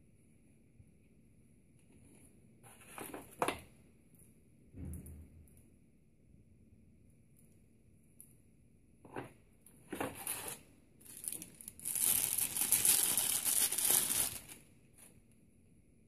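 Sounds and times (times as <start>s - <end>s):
plastic bag crinkling: 10.1s - 14.7s.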